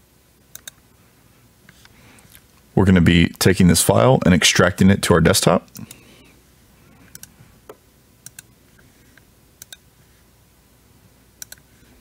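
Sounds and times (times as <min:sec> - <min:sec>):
faint room hiss: 0:00.0 - 0:12.0
computer mouse and keyboard clicks: 0:00.5 - 0:00.8, 0:07.1 - 0:07.3, 0:08.2 - 0:08.5, 0:11.4 - 0:11.9.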